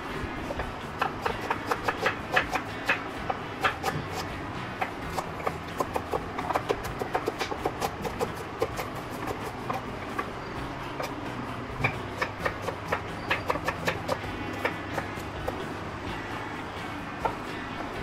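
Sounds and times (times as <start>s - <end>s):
knife chopping on wooden board: 5.1s - 9.8s.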